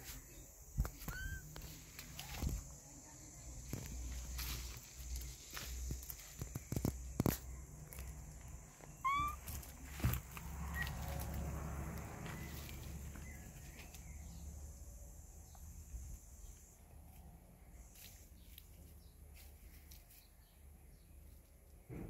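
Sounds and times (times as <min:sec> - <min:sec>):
rustling in grass: 0:00.0 - 0:07.4, 0:08.0 - 0:14.3, 0:16.3 - 0:20.5
kitten meow: 0:01.0 - 0:01.4, 0:09.0 - 0:09.4.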